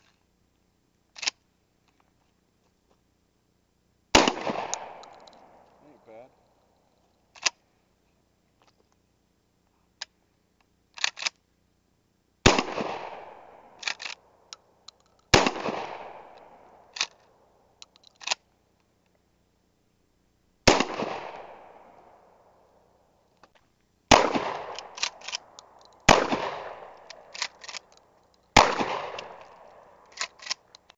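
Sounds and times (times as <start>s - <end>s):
shotgun pump action racking: 1.2s - 1.4s, 4.6s - 5.5s, 7.4s - 7.6s, 11.0s - 11.4s, 13.8s - 15.3s, 16.3s - 18.4s, 24.4s - 30.9s
shotgun blasts with echo: 4.2s - 6.3s, 12.4s - 14.2s, 15.3s - 17.1s, 20.7s - 22.4s, 24.1s - 27.7s, 28.6s - 30.1s.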